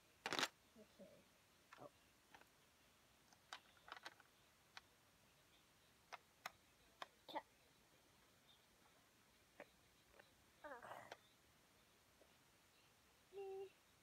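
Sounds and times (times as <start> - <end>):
plastic bricks clicking: 0.2 - 0.5, 3.3 - 4.9.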